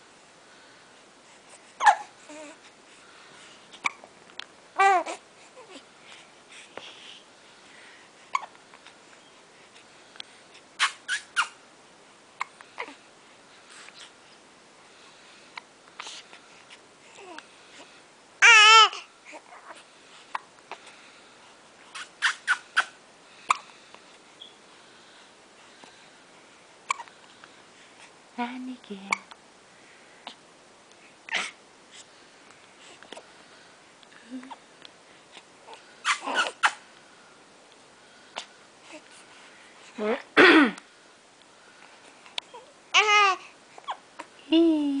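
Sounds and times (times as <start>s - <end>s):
infant cooing: 1.8s - 2.6s, 4.8s - 5.8s, 18.4s - 19.8s, 42.5s - 44.0s.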